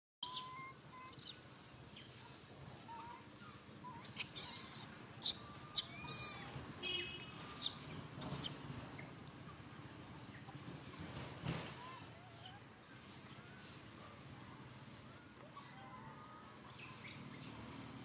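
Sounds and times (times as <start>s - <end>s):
faint high animal chirps: 0.2s - 8.6s, 11.8s - 17.3s
animal squeal: 3.8s - 6.8s.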